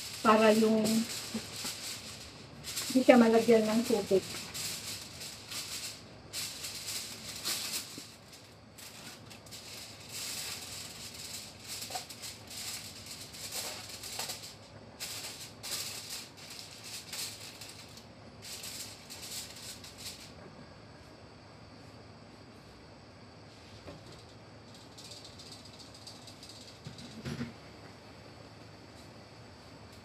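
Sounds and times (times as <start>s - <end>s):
aluminium foil crinkling: 0.0s - 20.3s, 24.1s - 27.2s.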